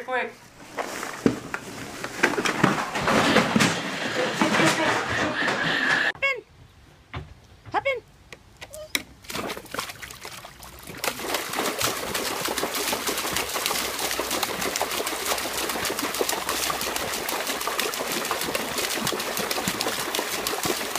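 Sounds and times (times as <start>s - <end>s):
dog splashing in water: 9.2s - 20.9s.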